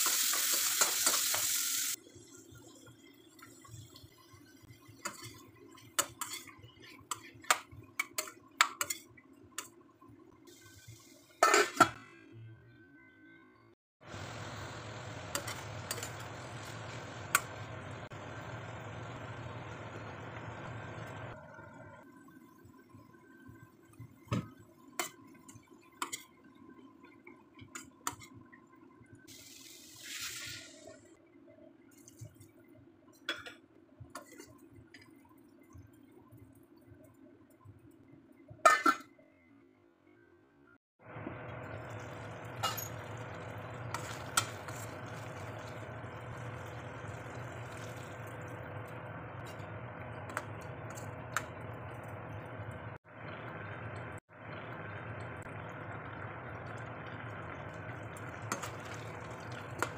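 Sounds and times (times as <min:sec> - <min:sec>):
gravy simmering: 0:02.0 - 0:11.1, 0:41.0 - 0:59.9
water poured into pan: 0:41.5 - 0:49.6, 0:56.4 - 0:59.9.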